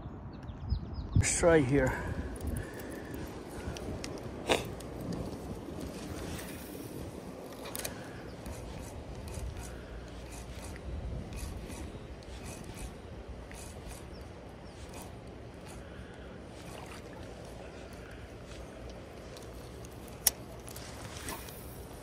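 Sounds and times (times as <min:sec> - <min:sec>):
spinning reel ticking: 0:08.4 - 0:14.2.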